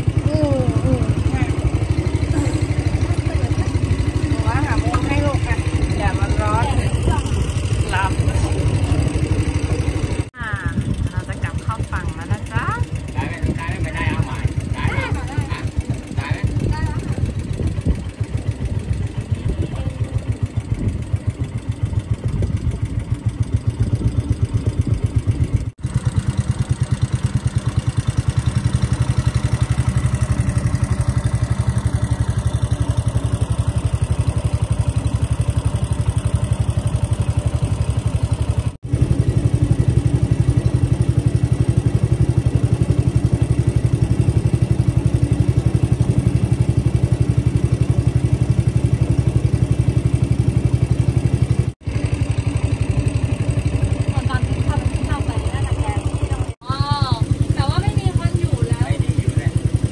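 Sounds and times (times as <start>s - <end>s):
boat engine chugging: 0.0s - 59.9s.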